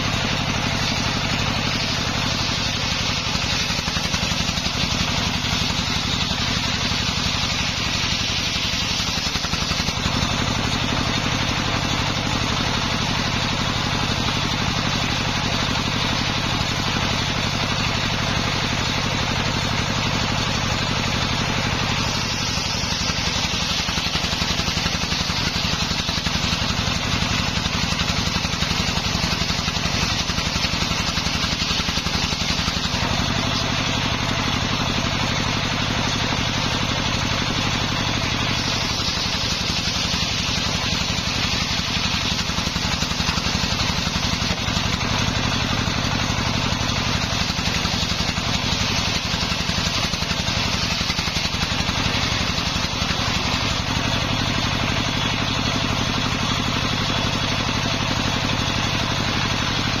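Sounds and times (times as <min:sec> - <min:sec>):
saw blade cutting hiss: 0:00.0 - 0:12.1, 0:19.0 - 0:34.6, 0:36.2 - 0:55.0
engine running: 0:00.0 - 1:00.0.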